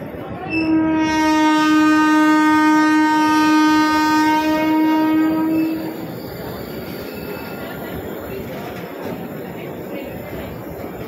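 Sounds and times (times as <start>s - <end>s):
train horn blast: 0.5s - 6.0s.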